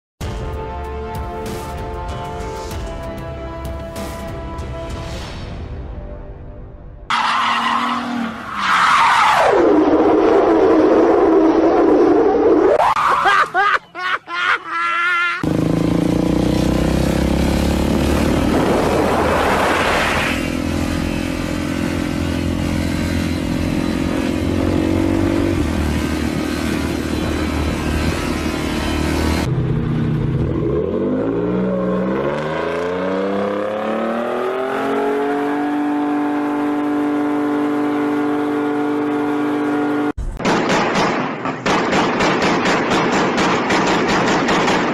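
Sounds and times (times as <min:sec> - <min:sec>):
motorcycle engine revving high: 0:15.4 - 0:40.2
truck engine revving: 0:15.4 - 0:40.2.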